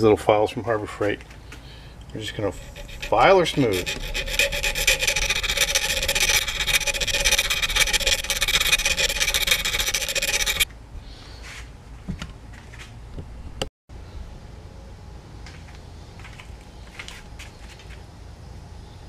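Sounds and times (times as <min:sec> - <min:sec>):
hand file rasping on steel: 0:02.2 - 0:10.7.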